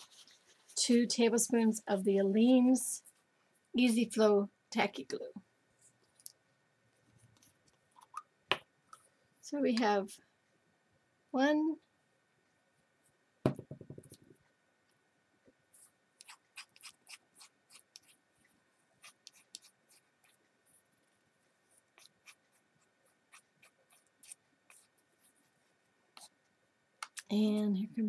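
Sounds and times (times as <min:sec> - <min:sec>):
knock: 0:13.4 - 0:14.1.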